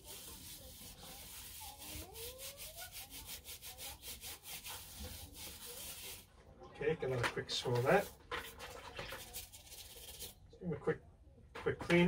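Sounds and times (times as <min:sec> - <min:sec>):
brush scrubbing a shower head: 0:00.0 - 0:06.3, 0:07.5 - 0:10.3.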